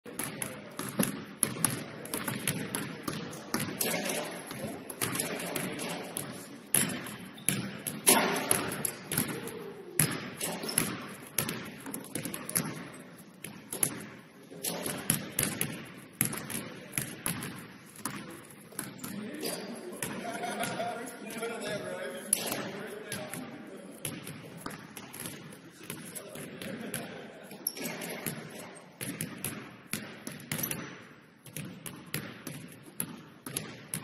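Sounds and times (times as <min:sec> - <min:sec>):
basketballs bouncing on hardwood: 0:00.1 - 0:19.2, 0:24.0 - 0:34.0
people talking: 0:01.7 - 0:06.5, 0:18.1 - 0:24.2, 0:25.7 - 0:28.7.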